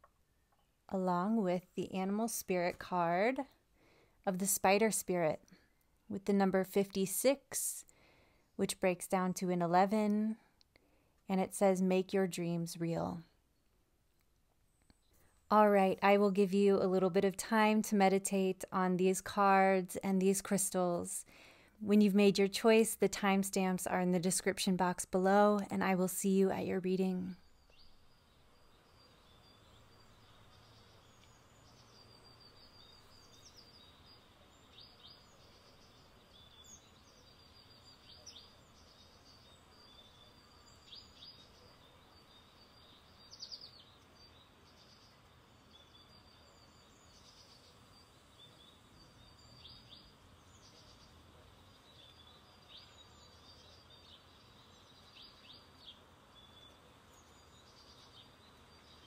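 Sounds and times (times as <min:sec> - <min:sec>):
faint bird chirps: 0:27.1 - 0:59.0.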